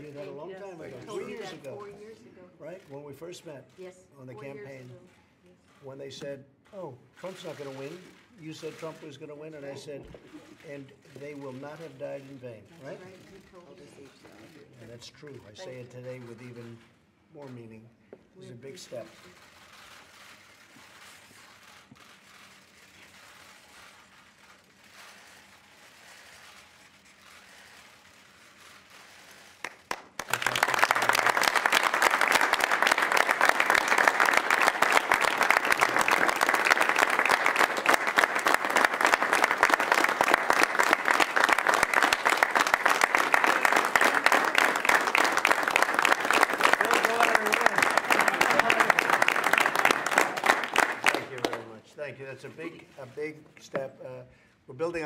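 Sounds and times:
applause: 29.3s - 51.8s.

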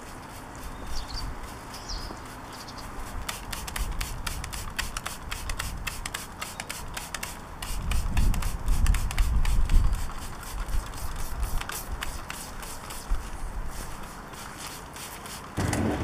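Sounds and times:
trigger sprayer squirting: 1.4s - 13.1s.

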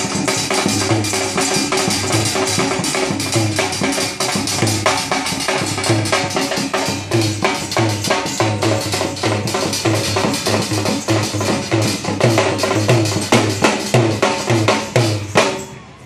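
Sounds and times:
dhol drum fast rhythm: 0.0s - 15.9s.

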